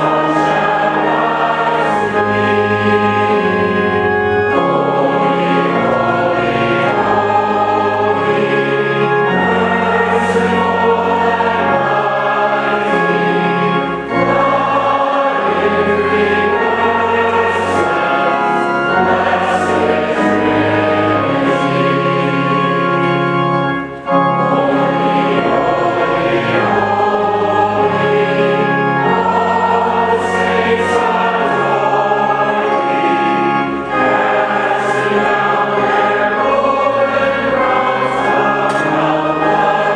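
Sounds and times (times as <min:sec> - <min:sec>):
choir singing a hymn: 0:00.0 - 0:39.9
organ: 0:00.0 - 0:39.9.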